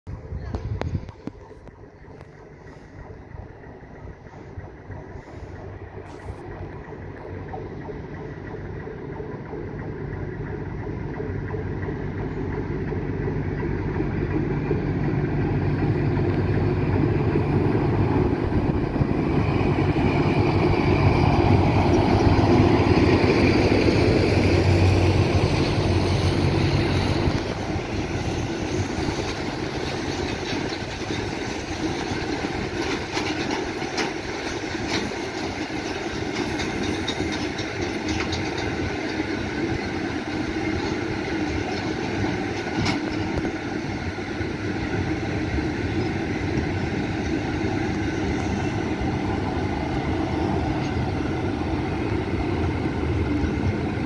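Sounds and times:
diesel locomotive engine drone: 0.0 - 54.0
freight wagons rumbling: 0.1 - 54.0.

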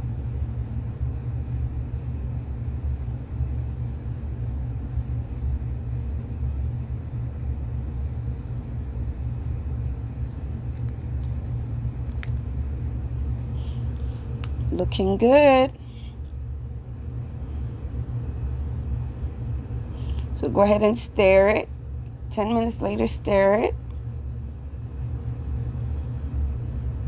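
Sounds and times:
stove rumbling: 5.9 - 27.0.

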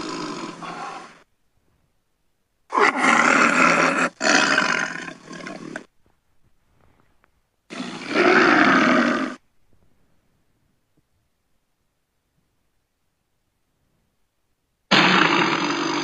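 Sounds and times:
big cat roaring: 0.0 - 1.2, 2.7 - 5.9, 7.7 - 9.4, 14.9 - 16.0.

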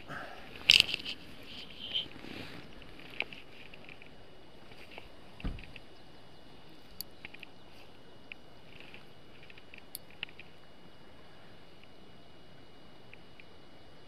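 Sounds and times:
steady outdoor hiss: 0.0 - 14.0
dull thump: 5.4 - 5.8.

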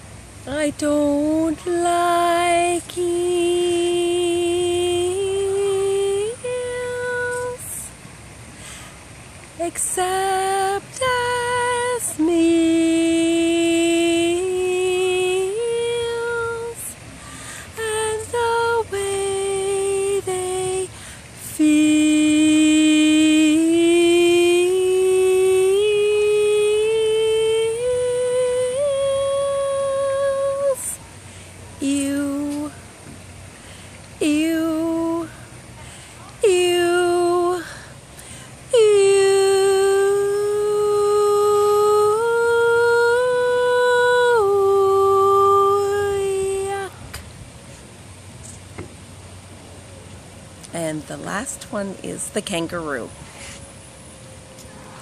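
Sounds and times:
woman singing unaccompanied: 0.0 - 47.2, 50.5 - 53.2.

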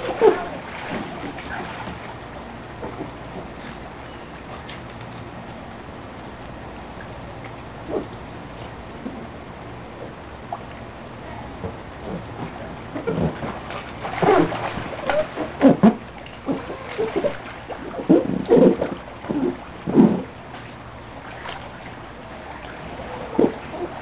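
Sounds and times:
irregular splashes and thumps: 0.0 - 5.2, 11.5 - 24.0.

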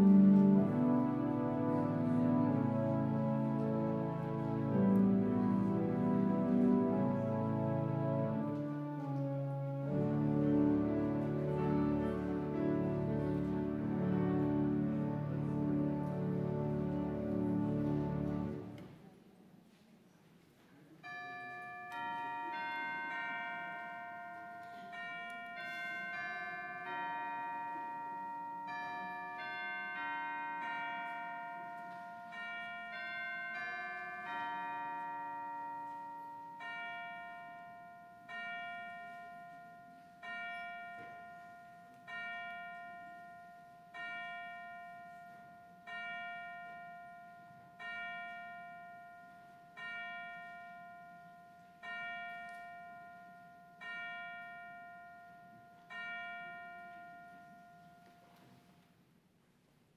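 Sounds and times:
bell chime melody: 21.0 - 58.7.

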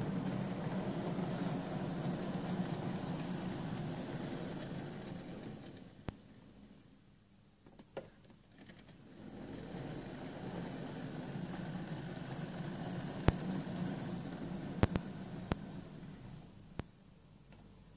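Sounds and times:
model train motor whine and rumble: 0.0 - 6.1, 9.0 - 16.6.

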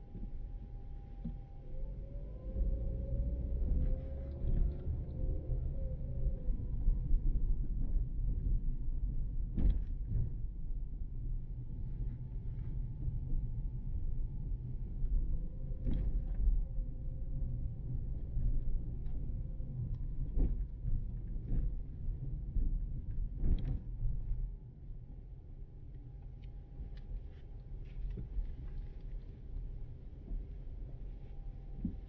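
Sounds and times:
car driving rumble: 0.0 - 32.0.

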